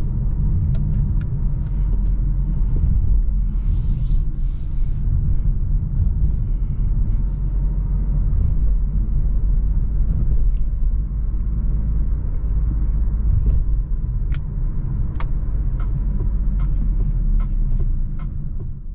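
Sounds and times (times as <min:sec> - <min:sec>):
car engine and road noise: 0:00.0 - 0:18.9.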